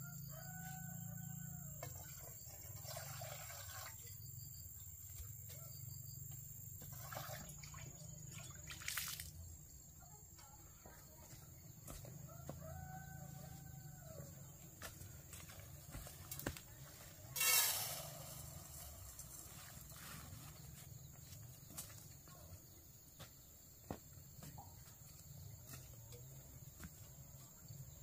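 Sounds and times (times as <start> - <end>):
rooster crowing: 0.0 - 1.9, 12.2 - 14.6.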